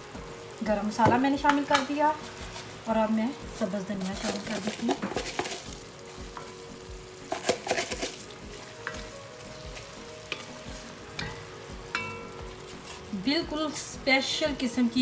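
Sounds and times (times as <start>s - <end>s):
light sizzle: 0.0s - 15.0s
curry bubbling: 0.5s - 14.4s
wooden spatula scraping a pot: 3.9s - 6.6s, 7.2s - 11.0s, 12.4s - 13.4s.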